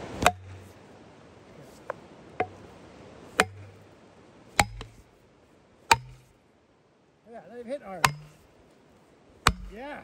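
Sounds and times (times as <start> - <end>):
axe striking plastic wedge: 4.6 - 5.0, 5.9 - 6.3, 8.0 - 8.4, 9.4 - 9.8.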